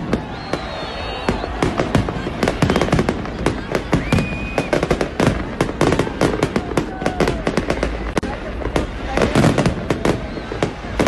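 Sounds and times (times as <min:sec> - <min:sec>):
high firework whistle: 0:00.0 - 0:07.8, 0:09.3 - 0:11.0
fireworks bangs and crackles: 0:00.0 - 0:11.0.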